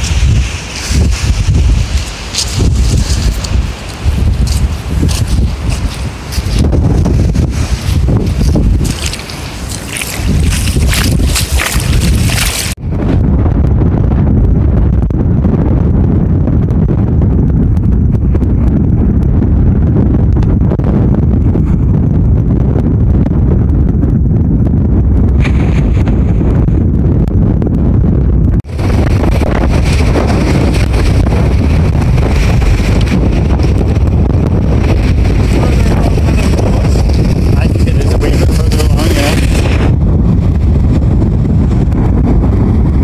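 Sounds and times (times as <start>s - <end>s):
wind buffeting microphone: 0.0s - 43.0s
waves crashing against sea wall: 28.7s - 34.1s.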